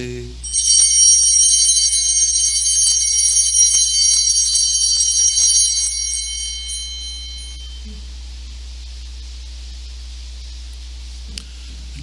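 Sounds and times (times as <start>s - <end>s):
altar bells jingling: 0.4s - 7.9s.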